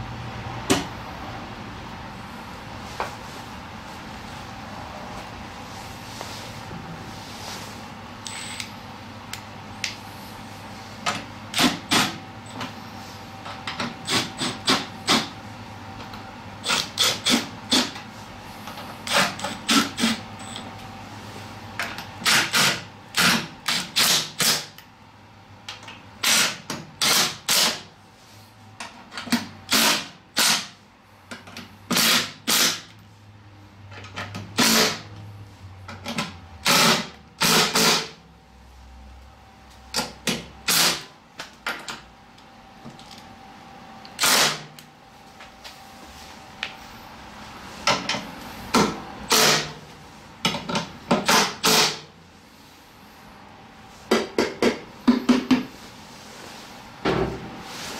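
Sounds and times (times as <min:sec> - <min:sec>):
impact driver hammering: 0:11.5 - 0:12.2, 0:36.6 - 0:38.2, 0:50.6 - 0:52.1.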